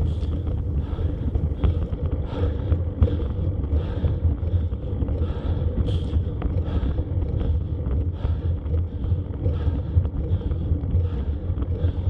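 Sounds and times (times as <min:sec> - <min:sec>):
wind buffeting microphone: 0:00.0 - 0:08.3.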